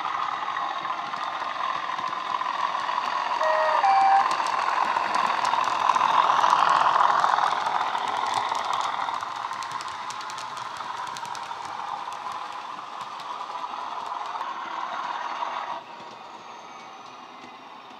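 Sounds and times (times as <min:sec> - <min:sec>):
model train wheels clicking: 0:00.0 - 0:16.2
diesel locomotive engine: 0:00.0 - 0:17.9
two-tone train horn: 0:03.4 - 0:04.4.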